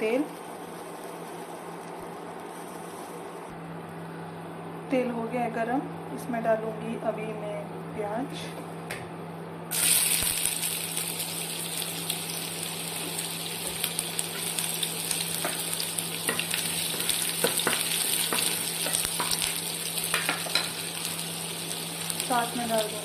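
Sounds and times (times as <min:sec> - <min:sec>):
steady low hum: 0:00.0 - 0:09.8
onions sizzling in frying pan: 0:09.7 - 0:23.0.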